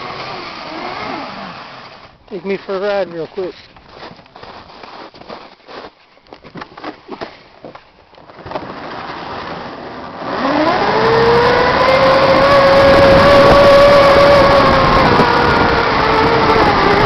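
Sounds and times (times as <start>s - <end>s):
electric motor whine: 0.0s - 2.2s, 10.2s - 17.0s.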